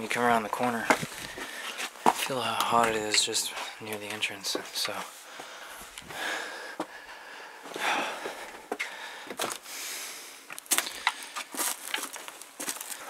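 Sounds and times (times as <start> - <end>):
footsteps crunching on rock: 0.0 - 6.2, 7.7 - 9.7, 10.5 - 13.0
twigs snapping: 10.5 - 13.0.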